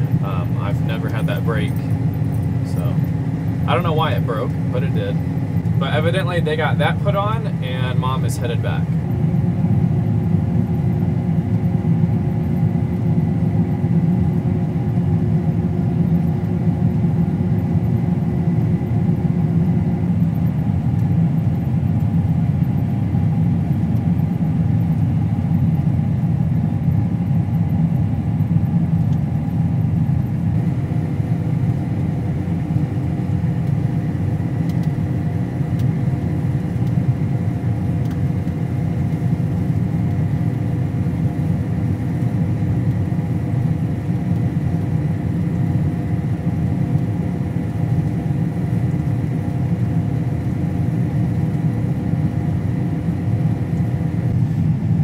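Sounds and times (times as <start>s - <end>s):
faint high whine: 0.0s - 22.1s
combine harvester droning: 0.0s - 55.0s.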